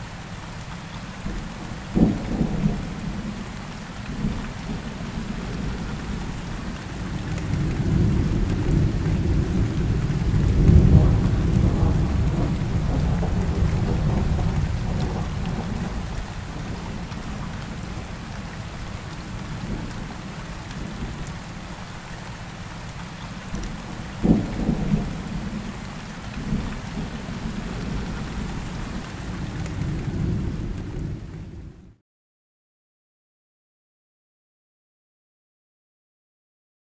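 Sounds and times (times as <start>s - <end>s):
steady rain: 0.0s - 32.0s
low rolling thunder: 1.3s - 3.5s, 4.1s - 18.4s, 23.7s - 31.8s
sharp thunderclap: 7.9s - 16.0s, 24.2s - 25.5s.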